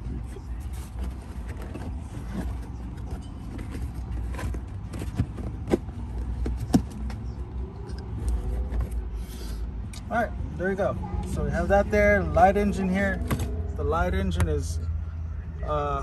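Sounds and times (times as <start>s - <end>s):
rustling and scraping: 0.0s - 7.4s, 8.0s - 9.7s.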